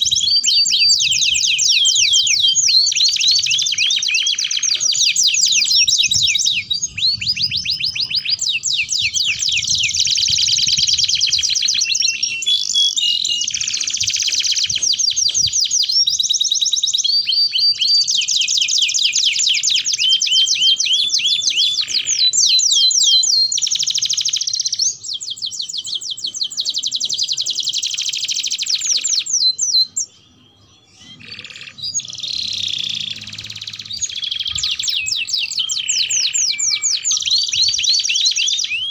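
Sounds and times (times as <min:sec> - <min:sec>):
canaries singing trills: 0:00.0 - 0:38.9.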